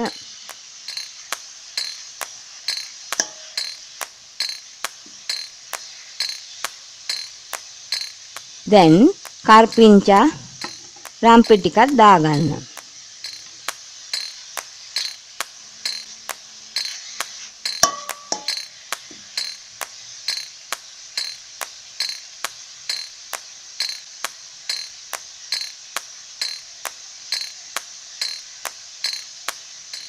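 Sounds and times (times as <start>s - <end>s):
vegetables sizzling in oil: 0.0s - 30.0s
spoon clinking against pot: 17.7s - 18.7s.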